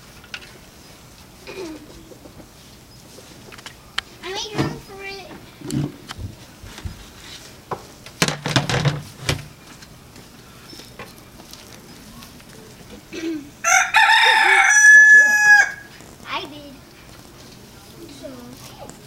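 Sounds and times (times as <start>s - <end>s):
rustling scrape: 5.5s - 7.6s
rooster crowing: 13.6s - 15.9s.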